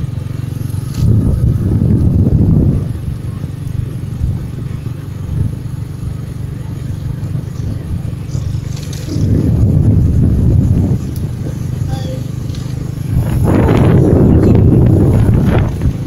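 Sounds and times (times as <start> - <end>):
road and wind noise: 0.0 - 16.0.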